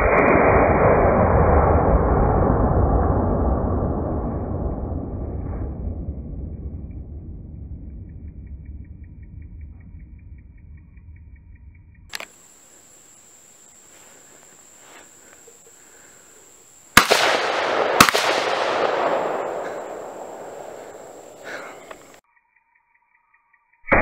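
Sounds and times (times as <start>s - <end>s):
rolling echo: 15.2s - 22.2s
rifle shots: 16.9s - 22.2s.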